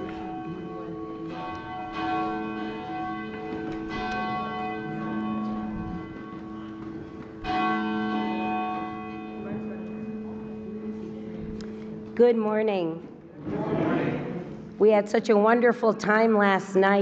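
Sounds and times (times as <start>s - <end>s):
church bells ringing: 0.0s - 12.8s.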